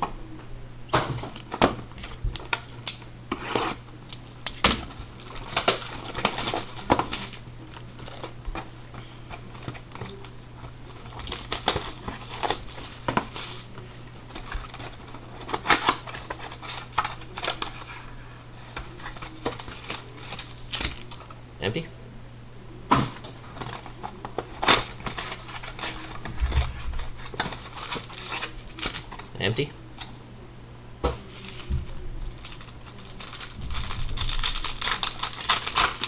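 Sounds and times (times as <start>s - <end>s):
steady low hum: 0.0s - 36.0s
wrapper crinkling and tearing: 1.4s - 8.3s, 9.3s - 18.0s, 18.6s - 21.3s, 23.4s - 29.3s, 31.2s - 36.0s
card packs clicking and tapping: 4.2s - 17.9s, 18.7s - 21.3s, 22.9s - 29.3s, 31.2s - 36.0s.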